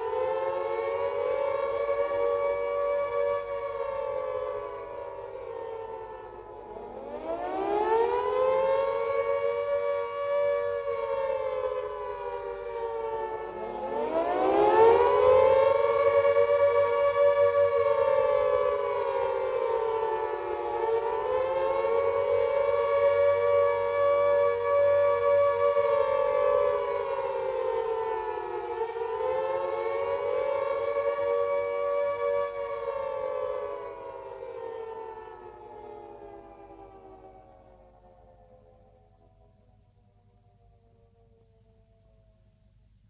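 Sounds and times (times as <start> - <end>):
air raid siren wailing: 0.0 - 42.8.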